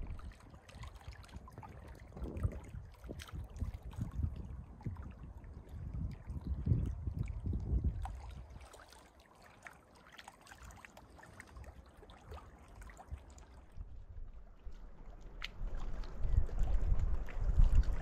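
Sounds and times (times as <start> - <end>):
wind buffeting microphone: 0.0 - 8.6, 13.1 - 18.0
small waves lapping: 0.0 - 18.0.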